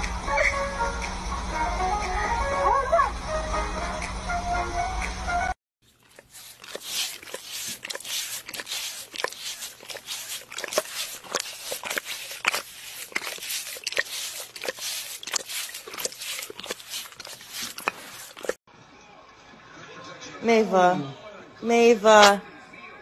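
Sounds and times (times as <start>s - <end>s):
puppies licking glass: 5.8s - 18.6s.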